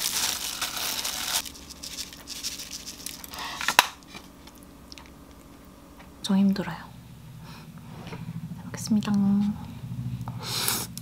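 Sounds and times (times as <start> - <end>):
handling sounds: 0.0 - 5.2
wet noodles crackling in bowl: 0.0 - 5.7.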